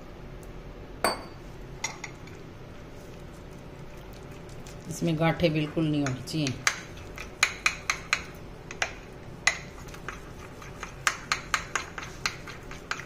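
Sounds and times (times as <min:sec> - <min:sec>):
spoon clinking against glass bowl: 0:01.0 - 0:02.0.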